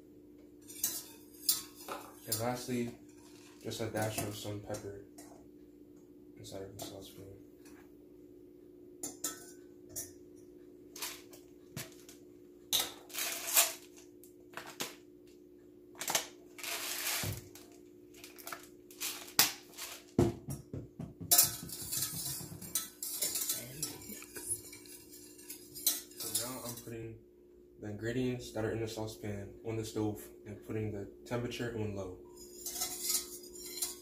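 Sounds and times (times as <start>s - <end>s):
steady low hum: 0.0s - 34.0s
knock: 20.2s - 22.6s.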